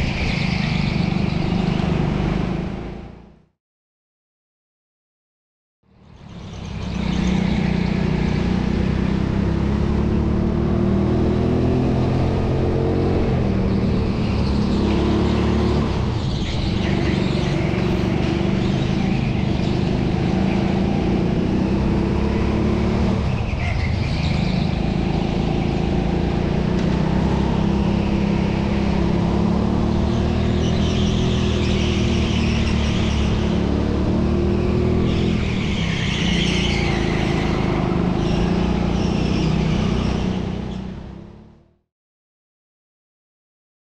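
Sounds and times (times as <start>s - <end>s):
go-kart engine running: 6.3s - 41.5s.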